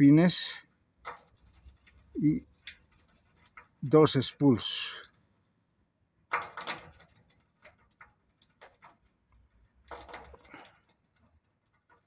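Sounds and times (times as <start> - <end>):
lock pick scraping and clicking: 9.9 - 11.0.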